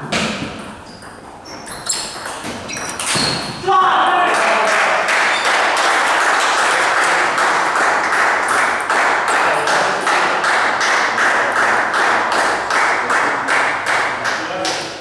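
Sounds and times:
spectators clapping in rhythm: 0:04.2 - 0:15.0.

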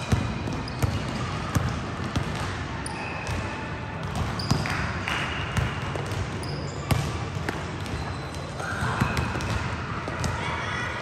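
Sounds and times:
basketballs bouncing on gym floor: 0:00.0 - 0:10.6
background noise: 0:00.0 - 0:11.0
shoe squeaks: 0:00.4 - 0:01.1, 0:02.8 - 0:03.5, 0:06.4 - 0:07.0, 0:07.9 - 0:09.4.

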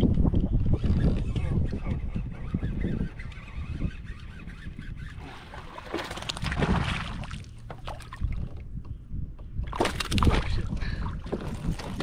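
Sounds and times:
wind on microphone: 0:00.0 - 0:12.0
water lapping against kayak hull: 0:05.1 - 0:08.8, 0:09.6 - 0:12.0
water splashing rush: 0:05.2 - 0:07.5.

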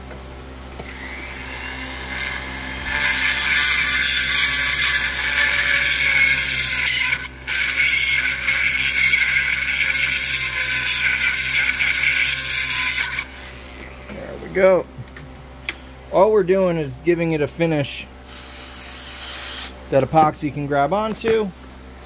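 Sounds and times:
die grinder grinding metal: 0:00.8 - 0:14.8, 0:18.3 - 0:19.8.

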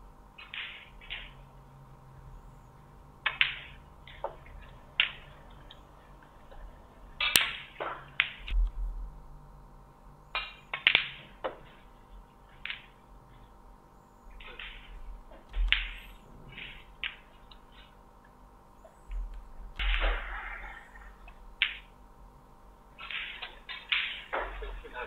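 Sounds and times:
snooker balls knocking together: 0:03.2 - 0:05.8, 0:06.4 - 0:08.6, 0:10.4 - 0:11.8, 0:12.6 - 0:13.0, 0:14.4 - 0:17.6, 0:23.0 - 0:25.0
cue striking ball: 0:07.2 - 0:08.6.

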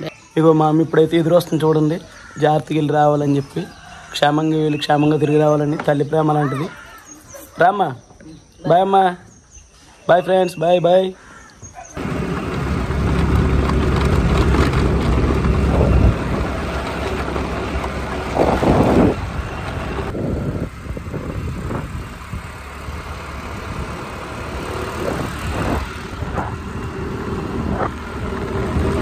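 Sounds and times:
scooter engine running: 0:12.0 - 0:29.0
wind rushing over microphone: 0:13.0 - 0:29.0.

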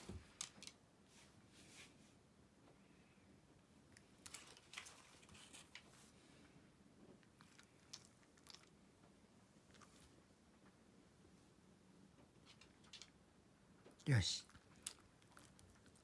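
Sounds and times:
dog crunching dry biscuit: 0:07.2 - 0:08.8, 0:14.4 - 0:16.0.

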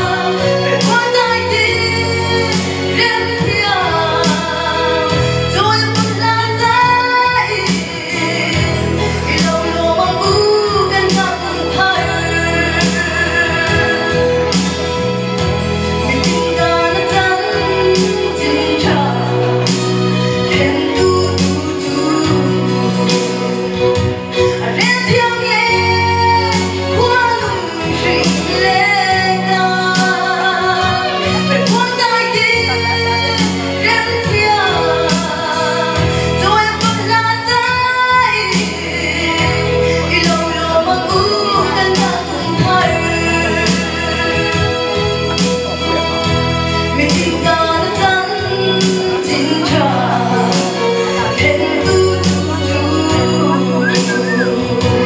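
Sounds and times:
musical accompaniment with bass and beat: 0:00.0 - 0:55.0
woman singing into a microphone: 0:00.0 - 0:55.0.

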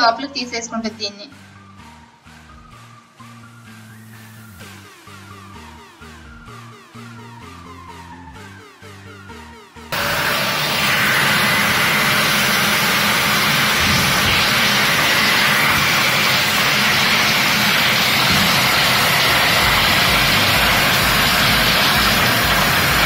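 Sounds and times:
vacuum cleaner running: 0:09.9 - 0:23.0.

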